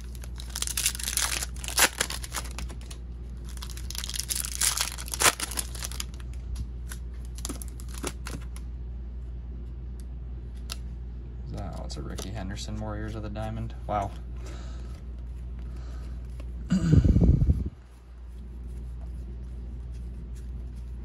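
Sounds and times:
foil wrapper tearing and crinkling: 0.0 - 8.4.

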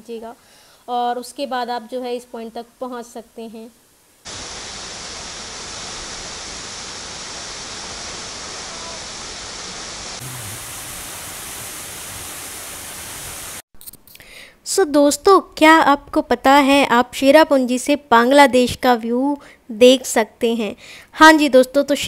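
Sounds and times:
waterfall rushing onto boulders: 4.3 - 13.6.

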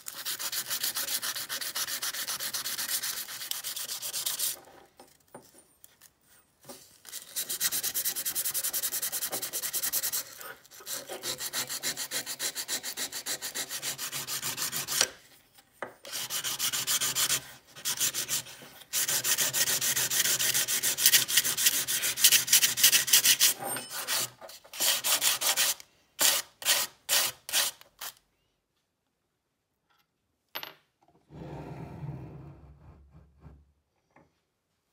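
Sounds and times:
sandpaper rubbing on metal: 0.0 - 4.6, 7.1 - 15.0, 16.1 - 27.8.

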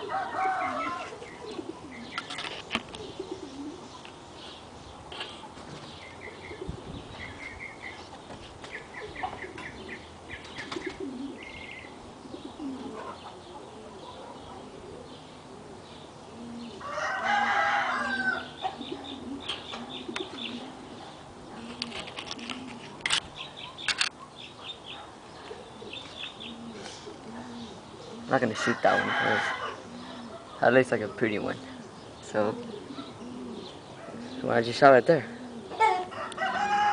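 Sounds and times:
rooster crowing: 0.0 - 1.2, 16.8 - 18.6, 28.5 - 29.8, 35.8 - 36.9
dove cooing: 0.0 - 4.1, 5.1 - 8.0, 8.6 - 36.9
small birds chirping: 0.0 - 36.9.

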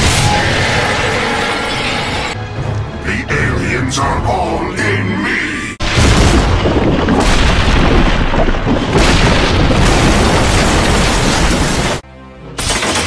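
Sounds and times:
building collapsing: 5.8 - 12.0.

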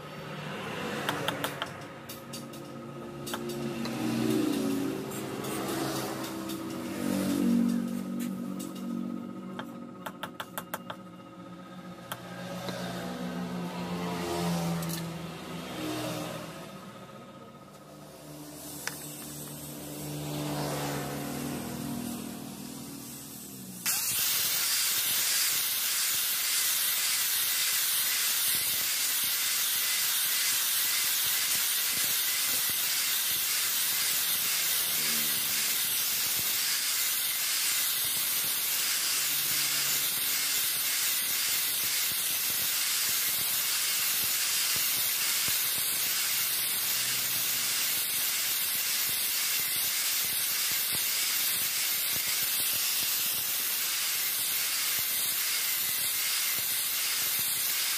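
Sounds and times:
angle grinder grinding steel: 1.5 - 10.2, 17.7 - 57.9.

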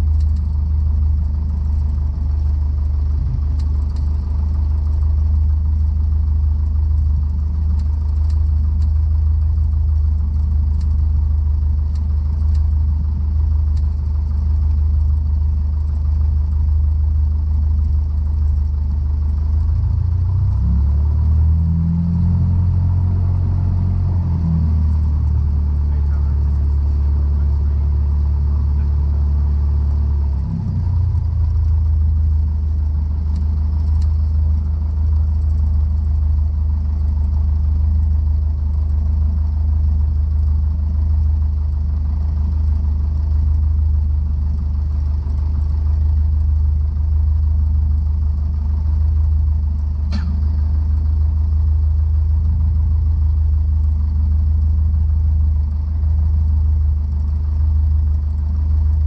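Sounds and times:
propeller aircraft engine droning: 0.0 - 59.0
short click: 50.1 - 50.7.

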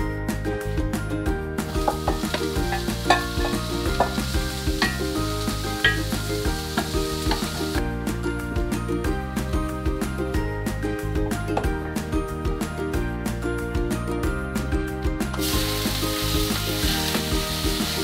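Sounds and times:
background music: 0.0 - 18.0
vegetables sizzling in a skillet: 1.6 - 7.8, 15.4 - 18.0.

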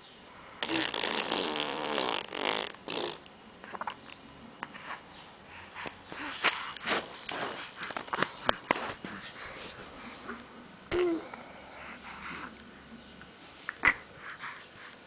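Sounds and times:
baby blowing a raspberry: 0.6 - 3.9.

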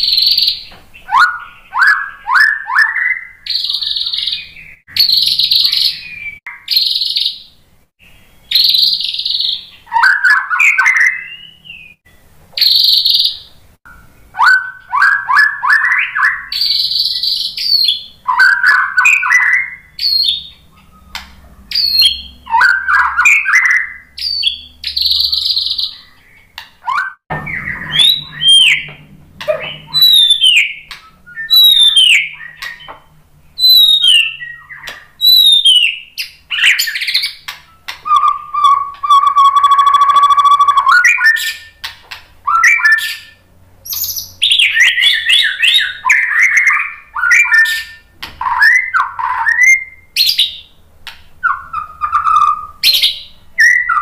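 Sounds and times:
bird singing harsh scratchy notes: 0.0 - 54.0
bird rattling trills: 26.9 - 32.9.

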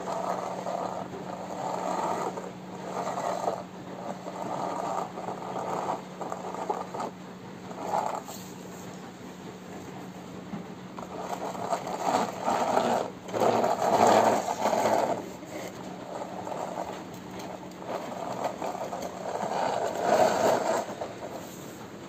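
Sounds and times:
toy wheels rattling and grinding: 0.0 - 8.5, 11.0 - 21.5.

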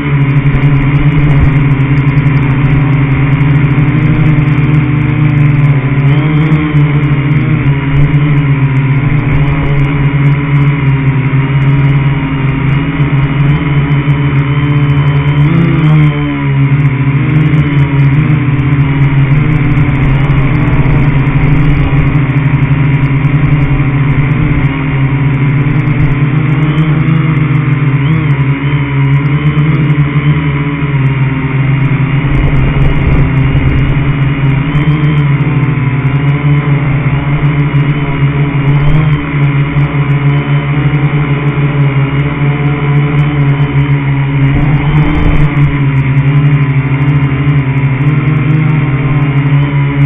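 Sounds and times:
rumbling from driving over grass: 0.0 - 50.0
toy car motor hum and whine: 0.0 - 50.0.

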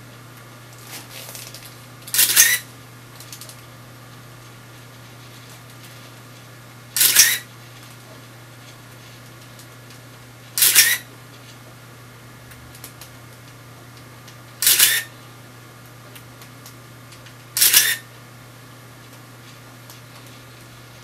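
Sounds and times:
camera motor winding film: 2.1 - 2.7, 7.0 - 7.5, 10.6 - 11.1, 14.6 - 15.1, 17.6 - 18.0
camera shutter clatter: 2.1 - 2.7, 7.0 - 7.5, 10.6 - 11.0, 14.6 - 15.1, 17.6 - 18.0.

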